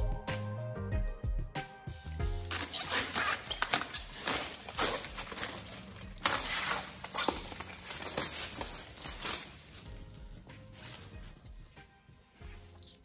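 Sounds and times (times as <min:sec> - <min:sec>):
plastic bag crinkling: 0:02.5 - 0:11.6.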